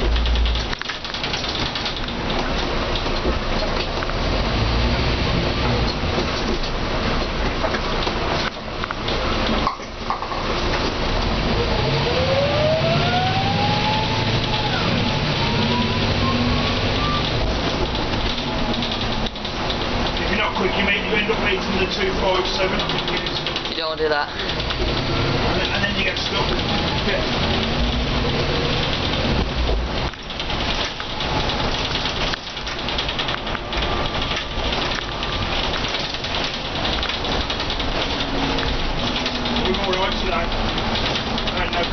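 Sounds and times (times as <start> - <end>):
bus diesel engine: 0.0 - 41.9
road noise: 0.0 - 41.9
rain hissing: 10.4 - 41.9
gearbox whine rising: 11.2 - 19.1.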